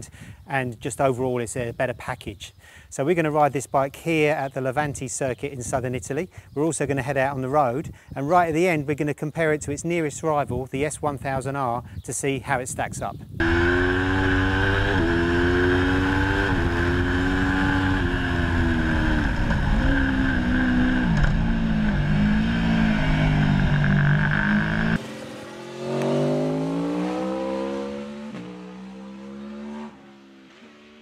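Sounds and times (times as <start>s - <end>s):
motorcycle engine revving: 13.4s - 31.0s.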